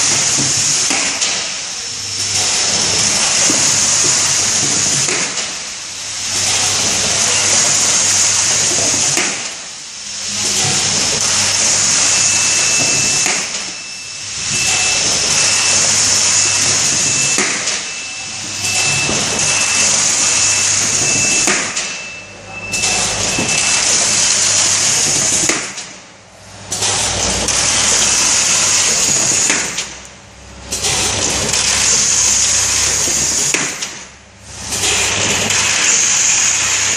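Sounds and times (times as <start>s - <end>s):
air hiss: 0.0s - 21.9s, 34.6s - 36.9s
high electronic beep: 12.1s - 24.0s.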